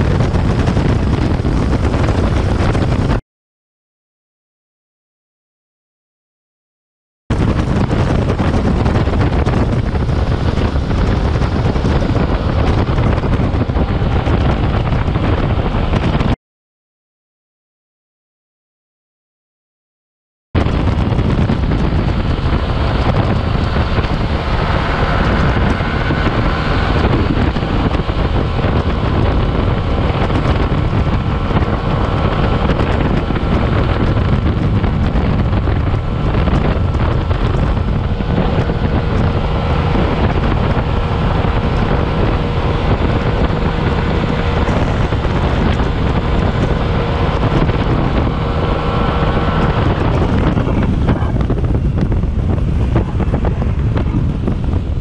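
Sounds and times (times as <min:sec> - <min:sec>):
wind buffeting microphone: 0:00.0 - 0:03.2, 0:07.3 - 0:16.4, 0:20.6 - 0:55.0
scooter engine droning: 0:07.3 - 0:16.3, 0:20.6 - 0:55.0.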